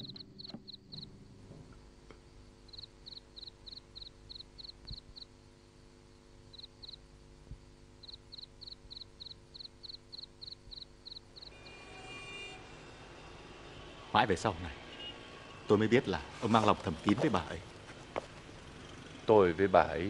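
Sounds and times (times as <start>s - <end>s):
cricket chirping: 0.0s - 1.4s, 2.3s - 5.5s, 6.1s - 11.8s
faint sustained tone: 10.0s - 14.1s.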